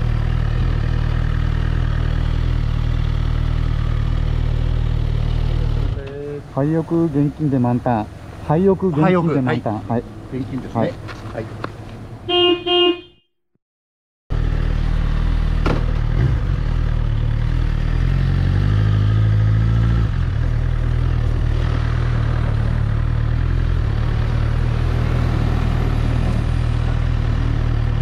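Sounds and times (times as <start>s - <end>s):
motorcycle engine running: 0.0s - 7.3s, 14.3s - 25.1s.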